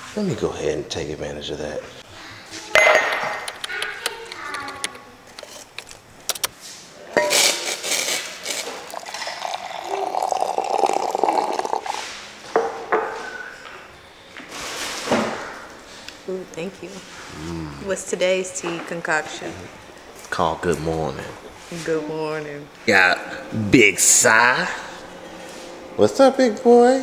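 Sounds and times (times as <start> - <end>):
hot water pouring into mug: 7.2 - 12.1
ceramic mug knocking on countertop: 12.5 - 13.2.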